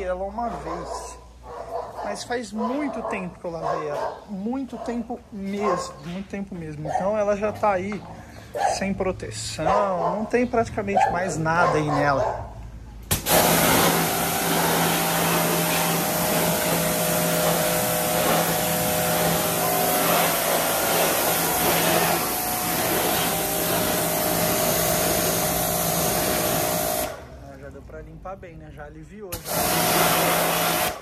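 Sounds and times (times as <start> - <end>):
high-pressure water jet hissing: 13.0 - 27.4, 29.3 - 31.0
pressure washer motor hum: 13.0 - 27.4, 29.3 - 31.0.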